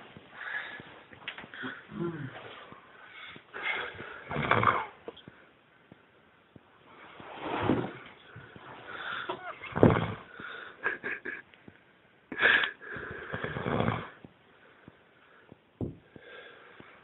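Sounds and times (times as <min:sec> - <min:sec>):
man snoring and wheezing: 0:01.6 - 0:02.5, 0:03.6 - 0:05.0, 0:09.1 - 0:10.6, 0:12.4 - 0:14.2.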